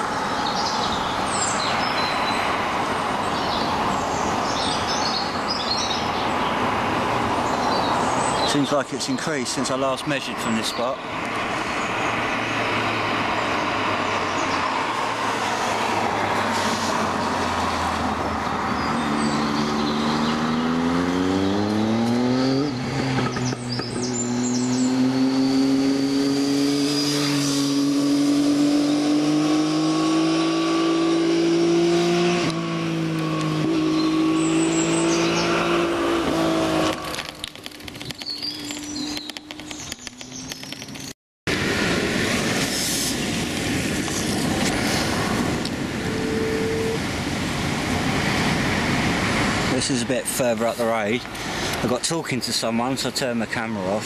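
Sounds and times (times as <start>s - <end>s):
vehicle engine accelerating: 11.6s - 49.8s.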